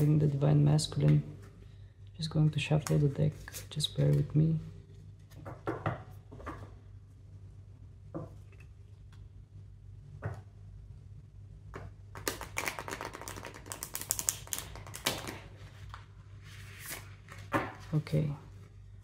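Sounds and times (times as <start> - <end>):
cards being shuffled: 12.1 - 18.0.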